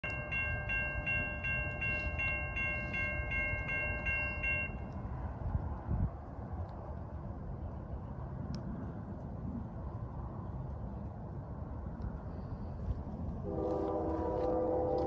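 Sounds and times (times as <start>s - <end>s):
crossing warning bell ringing: 0.0s - 5.2s.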